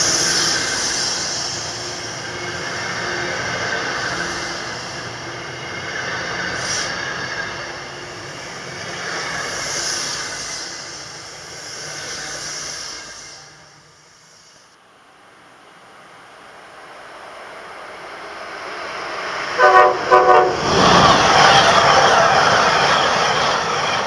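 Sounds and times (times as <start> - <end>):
high hiss: 0.0 - 19.6
train wheels clattering on track: 19.1 - 24.0.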